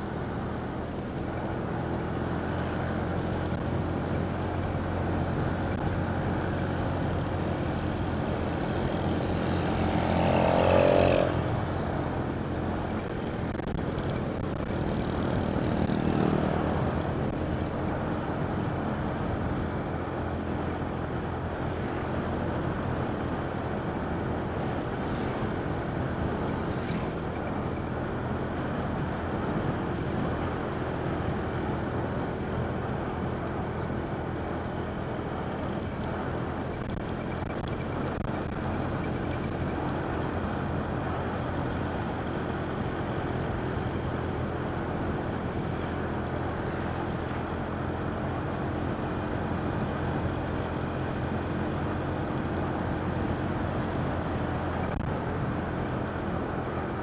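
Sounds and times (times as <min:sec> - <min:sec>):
road and wind noise: 0:00.0 - 0:57.0
vehicle engine running: 0:00.0 - 0:57.0.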